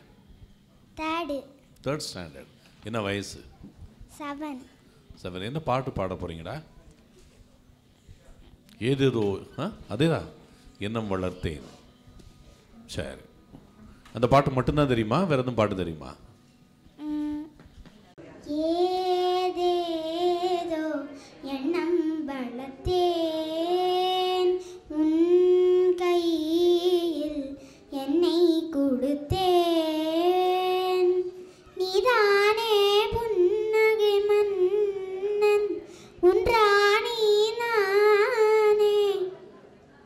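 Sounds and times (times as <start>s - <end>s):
girl singing unaccompanied: 17.0s - 17.6s, 18.4s - 39.5s.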